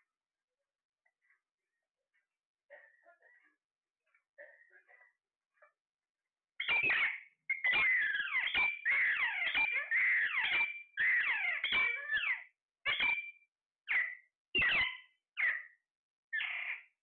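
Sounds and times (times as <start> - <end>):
parakeets screeching: 6.6 - 13.3, 13.9 - 15.8, 16.4 - 16.9.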